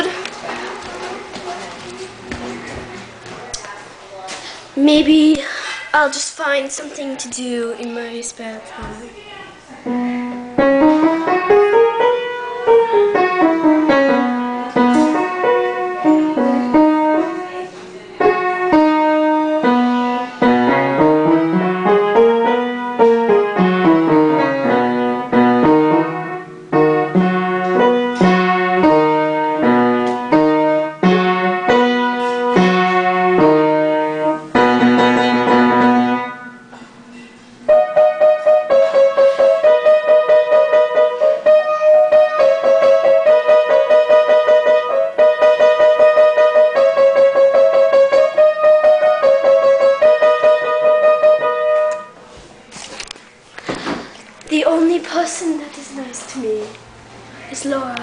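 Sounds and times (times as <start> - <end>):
piano music: 9.8 - 52.4.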